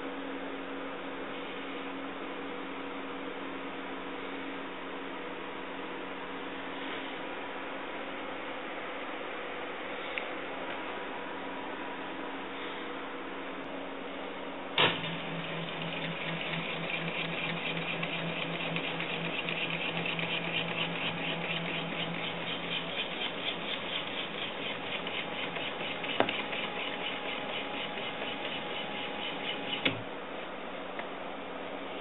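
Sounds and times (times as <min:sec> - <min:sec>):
stepper motors humming and pulsing: 0:14.8 - 0:30.1.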